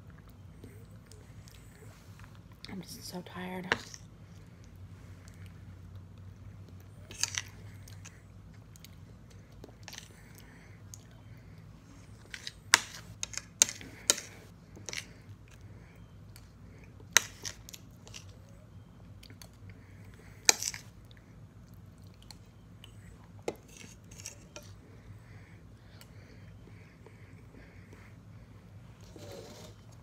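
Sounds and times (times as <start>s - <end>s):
chewing soft food: 14.6s - 25.1s
fork scraping on plate: 29.0s - 29.8s.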